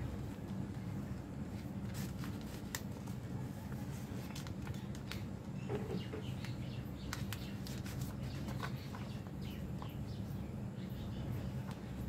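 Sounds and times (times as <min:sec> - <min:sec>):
paper folding and crinkling: 0:00.0 - 0:05.7, 0:06.4 - 0:09.9
steady low hum: 0:00.0 - 0:12.0.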